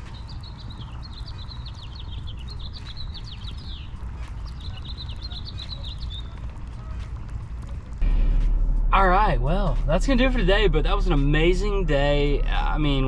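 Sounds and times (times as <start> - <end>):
songbird chattering trills: 0.0 - 6.4
low background rumble: 0.0 - 13.0.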